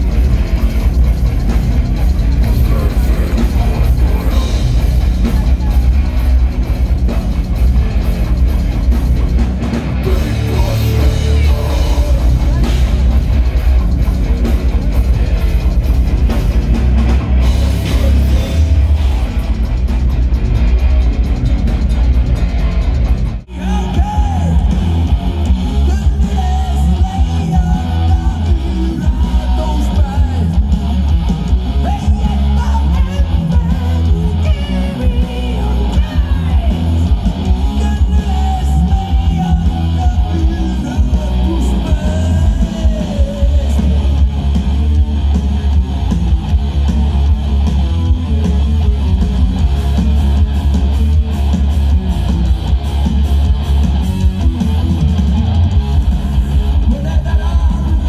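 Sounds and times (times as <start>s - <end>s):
heavy metal band playing live: 0.0s - 58.0s
person singing: 2.5s - 6.1s, 10.0s - 13.2s, 23.5s - 30.8s, 31.8s - 44.4s, 56.6s - 58.0s.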